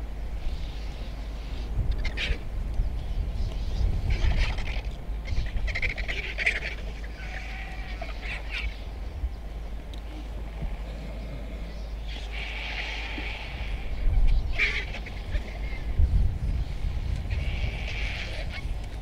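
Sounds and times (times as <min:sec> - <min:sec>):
vultures hissing and cackling: 0:00.4 - 0:02.5, 0:03.9 - 0:09.2, 0:10.0 - 0:19.0.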